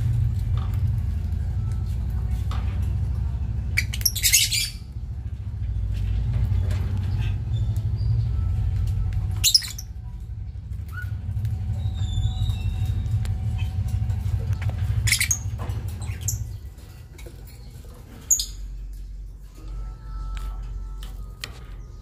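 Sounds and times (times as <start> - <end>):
steady low hum: 0.0 - 22.0
lovebirds squeaking and chirping: 3.6 - 19.3.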